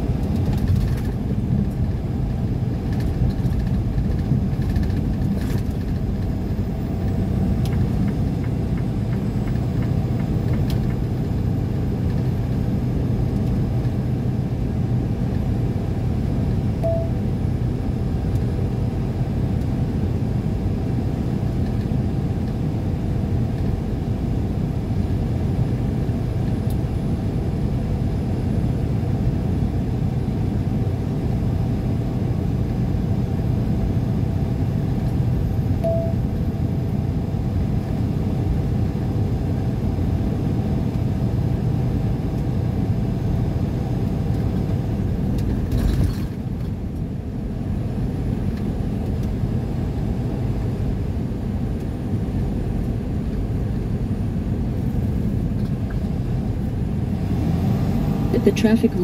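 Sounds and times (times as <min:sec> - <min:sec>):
car road and engine rumble: 0:00.0 - 0:59.0
short beeps: 0:16.8 - 0:17.2, 0:35.8 - 0:36.3.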